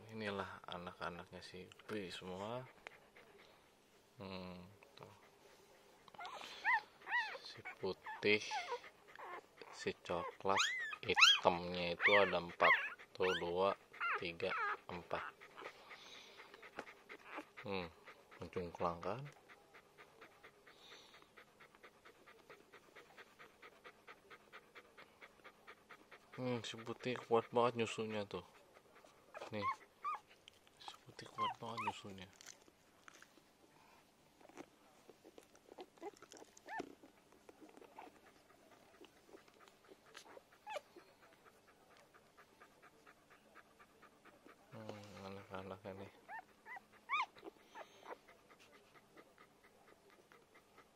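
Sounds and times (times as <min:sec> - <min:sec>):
dog panting rapidly: 0:01.9 - 0:03.8, 0:05.0 - 0:32.2, 0:36.6 - 0:50.9
puppy high squeals: 0:06.2 - 0:09.4, 0:10.2 - 0:13.4, 0:46.3 - 0:47.9
puppies squeaking and whimpering: 0:06.2 - 0:15.8, 0:16.4 - 0:17.6, 0:29.3 - 0:32.1, 0:35.7 - 0:38.2, 0:38.9 - 0:41.1, 0:44.9 - 0:48.2.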